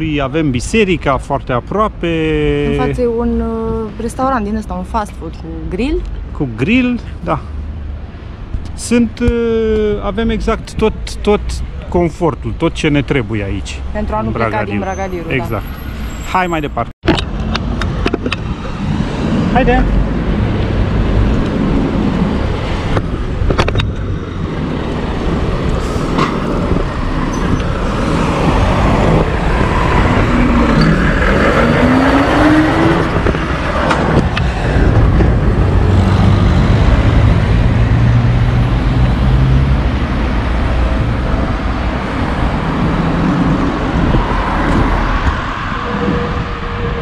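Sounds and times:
cars passing: 0.0s - 47.0s
wind rumble on microphone: 17.1s - 47.0s
rising and falling tone: 24.9s - 47.0s.

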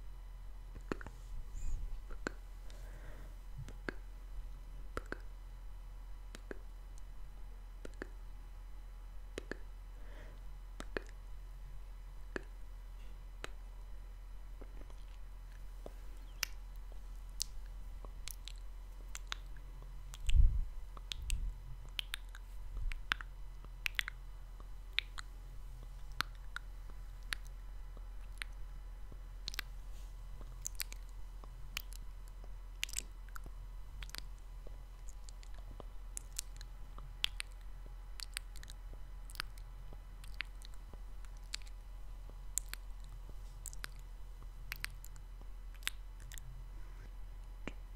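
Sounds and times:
steady low hum: 0.0s - 47.9s
wet lip smacks and clicks: 2.1s - 2.4s, 5.0s - 5.3s, 6.3s - 7.1s, 7.8s - 8.2s, 9.4s - 9.6s, 10.8s - 11.2s, 12.3s - 12.6s, 17.4s - 20.4s, 21.0s - 25.3s, 25.9s - 27.6s, 28.2s - 28.6s, 29.4s - 29.7s, 30.6s - 34.4s, 35.0s - 41.8s, 42.5s - 44.1s, 44.7s - 46.5s.

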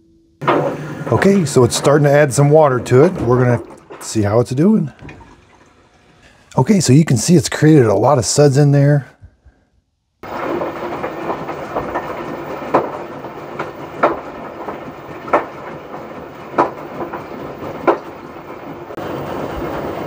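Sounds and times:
washing machine water sloshing: 0.4s - 6.6s, 10.2s - 20.0s.

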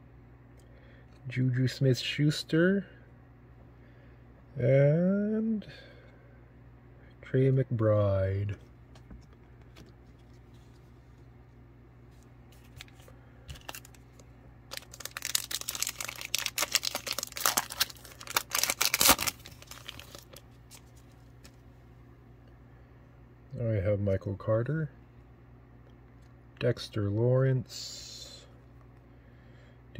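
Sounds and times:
foil wrapper tearing and crinkling: 12.7s - 21.0s.

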